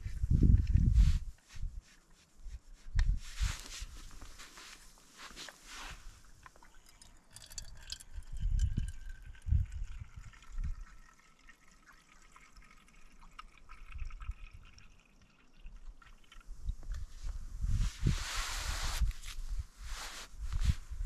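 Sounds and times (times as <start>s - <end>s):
liquid fuel trickling and dripping: 6.0s - 17.4s.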